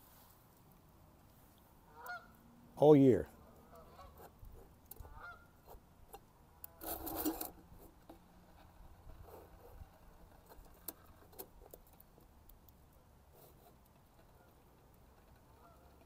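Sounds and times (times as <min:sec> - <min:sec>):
metal cup scraping on stove: 0:06.8 - 0:07.9.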